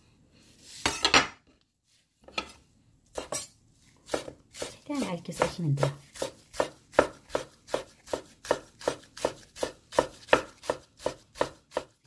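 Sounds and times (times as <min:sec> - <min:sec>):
knife chopping on wooden board: 0:03.2 - 0:03.5, 0:04.1 - 0:12.0.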